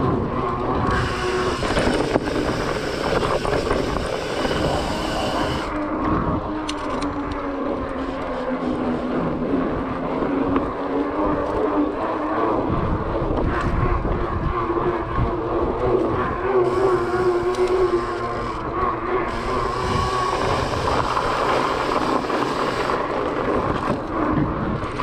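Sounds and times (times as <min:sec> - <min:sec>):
bike tyres rolling on wooden boards: 0:19.3 - 0:25.0.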